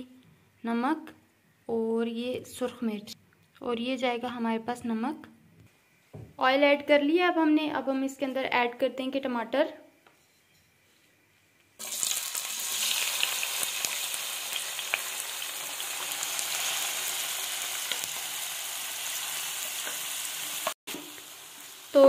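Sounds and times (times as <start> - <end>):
tomatoes sizzling in hot oil: 11.8 - 22.0.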